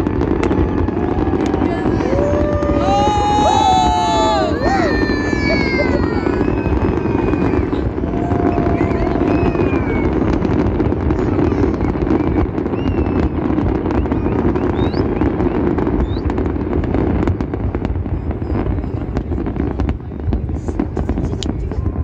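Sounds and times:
fireworks rising whistles: 0.0s - 10.6s, 11.4s - 16.6s
fireworks bursts crackling: 0.0s - 22.0s.

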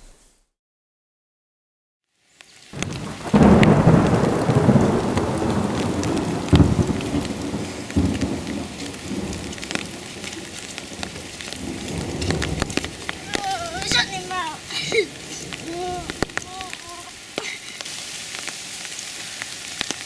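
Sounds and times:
steady rain: 2.1s - 20.0s
thunder rumbling: 2.8s - 17.4s.

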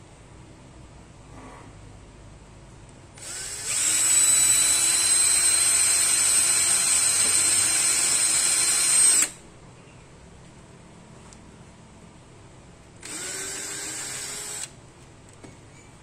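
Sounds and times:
cordless drill boring plastic: 3.2s - 9.4s, 13.0s - 14.7s.

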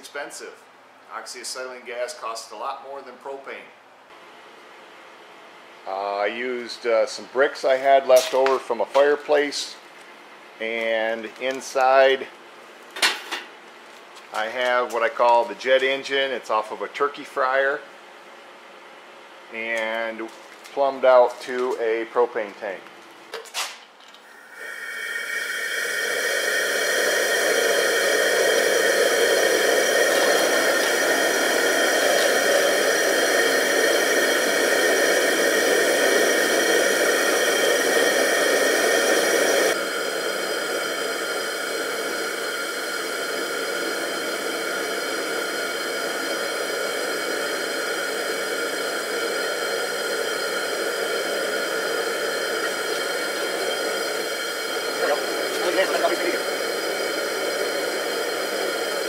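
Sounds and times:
gas burner rushing hiss: 5.8s - 9.8s, 14.3s - 17.9s, 23.4s - 59.0s.

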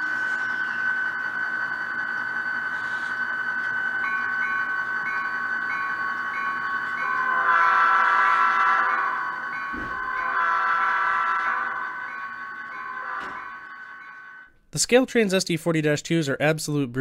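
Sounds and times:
bell ringing: 0.0s - 14.5s
train horn: 7.0s - 14.5s.

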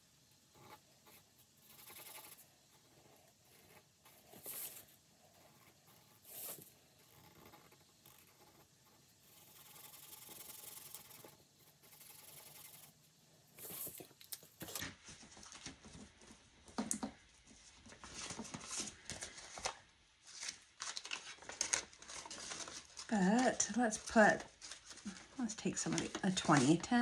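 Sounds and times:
paper rustling: 17.5s - 27.0s.

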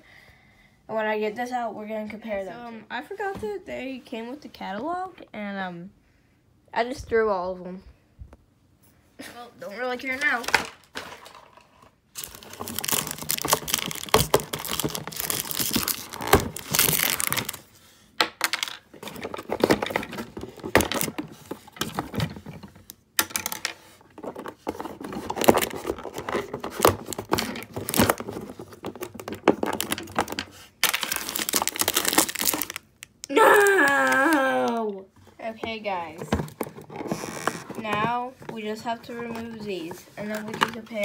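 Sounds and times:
cardboard packaging being torn: 12.2s - 17.6s, 25.4s - 34.4s.

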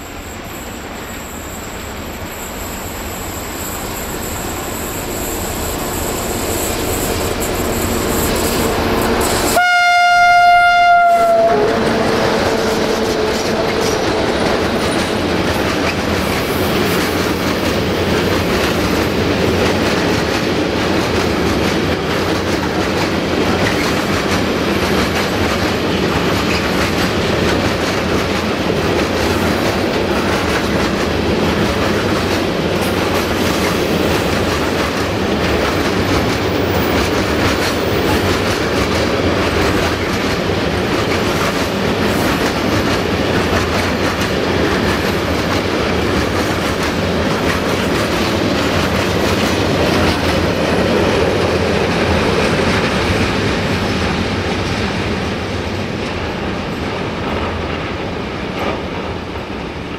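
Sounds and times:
train wheels rumbling on rails: 0.0s - 59.9s
locomotive horn blast: 5.7s - 14.0s.

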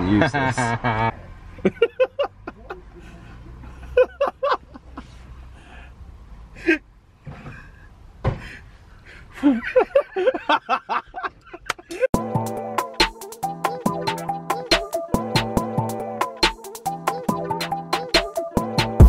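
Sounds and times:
people laughing and snickering: 0.1s - 5.2s, 9.4s - 12.1s
thump: 8.2s - 8.6s.

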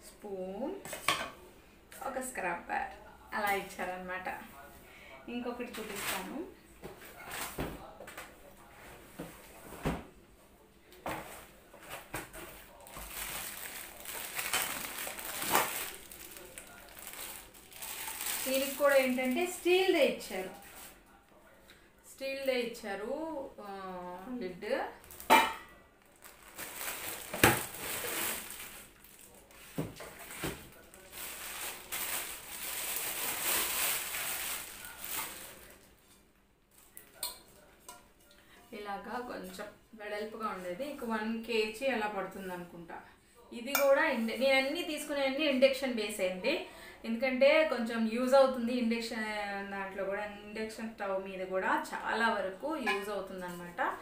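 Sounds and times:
plastic packaging crinkling: 12.3s - 19.7s, 20.3s - 21.0s, 25.0s - 25.3s, 26.0s - 35.9s.

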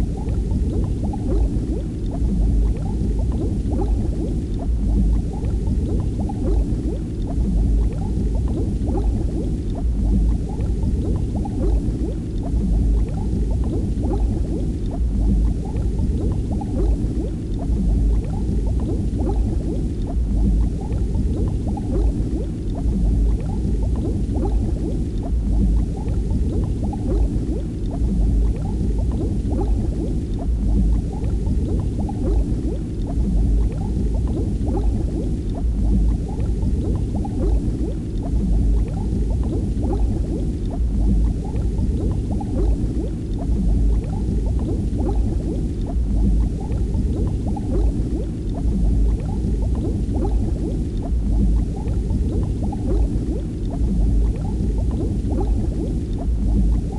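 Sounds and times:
deep continuous rumble: 0.0s - 56.9s
water bubbling and gurgling: 0.0s - 56.9s.

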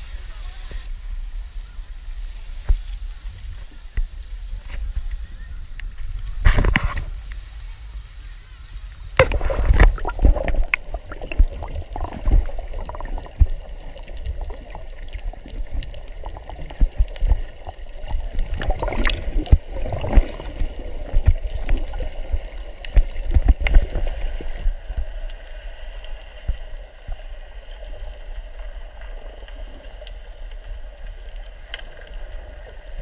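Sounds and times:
muffled underwater sloshing: 9.0s - 33.0s.

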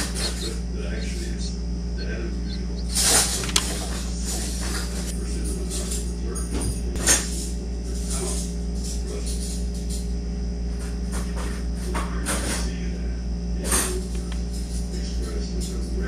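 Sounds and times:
faint high chirps: 0.0s - 3.4s
steady low hum: 0.0s - 16.0s.

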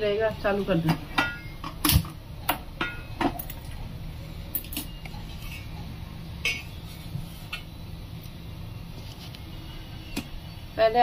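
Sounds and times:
low steady hum: 0.0s - 11.0s
utensils and dishes clinking: 0.6s - 7.7s.

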